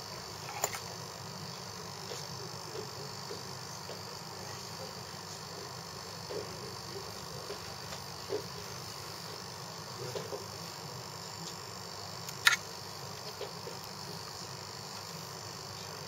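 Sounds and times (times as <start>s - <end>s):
crickets chirring: 0.0s - 16.0s
sharp click: 12.2s - 12.7s.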